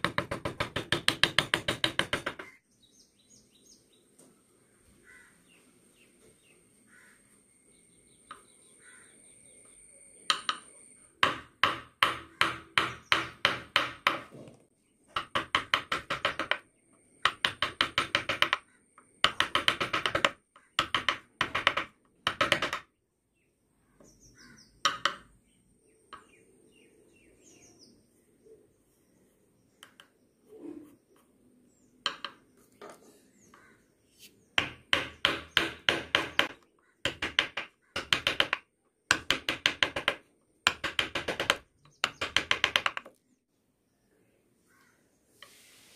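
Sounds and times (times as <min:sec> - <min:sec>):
mallet striking chisel into wood: 0:00.0 - 0:02.6, 0:11.2 - 0:14.3, 0:24.8 - 0:25.3, 0:32.1 - 0:32.4, 0:34.6 - 0:43.0.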